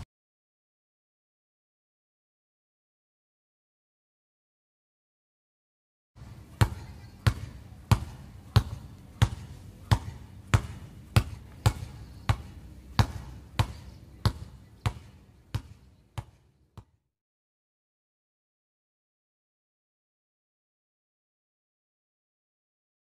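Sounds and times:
basketball bouncing on court: 6.2 - 17.0.

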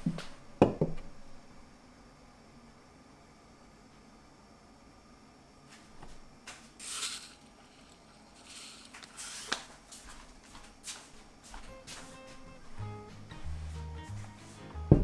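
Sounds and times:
seeds pattering onto noodles: 6.5 - 12.3.

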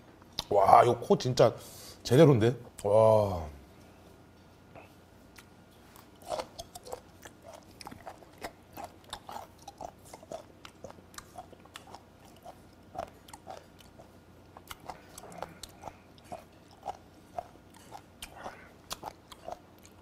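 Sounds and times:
close-up chewing clicks: 6.3 - 20.0.

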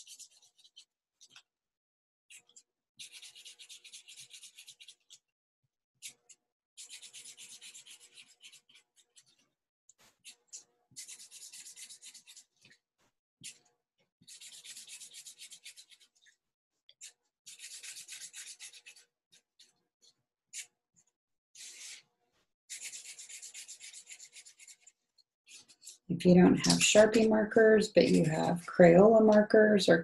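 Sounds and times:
marker scribbling on paper: 3.0 - 5.2, 6.8 - 9.4, 11.0 - 12.5, 14.3 - 16.2, 17.5 - 19.0, 21.6 - 22.0, 22.7 - 26.0.

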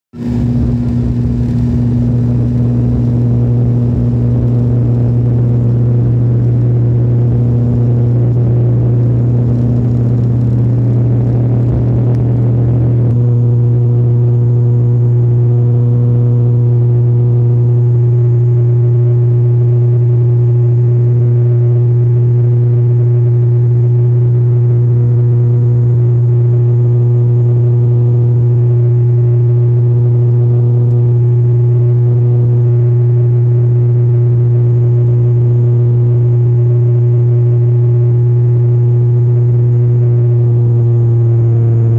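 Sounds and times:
airliner engines droning: 0.2 - 15.5
rough rumble: 0.2 - 19.6.

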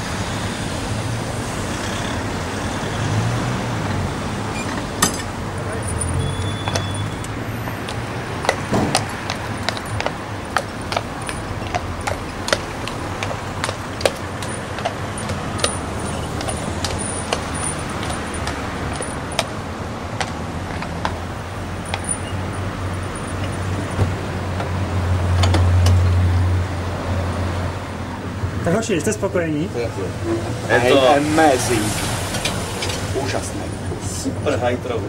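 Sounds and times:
horse hooves clopping on road: 0.0 - 27.6
passing vehicle engine hum: 0.0 - 28.7, 29.3 - 35.0
traffic noise: 0.0 - 35.0
harness chains jingling: 4.6 - 19.6.

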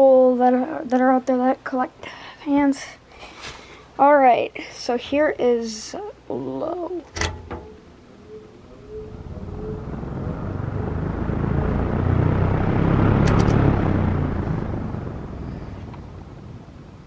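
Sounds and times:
faint motor hum: 3.8 - 17.0
fan switch click: 7.1 - 7.8
whoosh of moving air: 8.2 - 16.5.

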